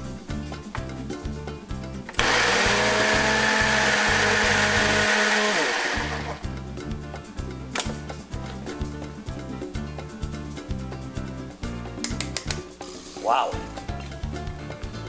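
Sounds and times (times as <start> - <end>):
background music with beat: 0.0 - 15.0
blender motor running: 2.2 - 6.4.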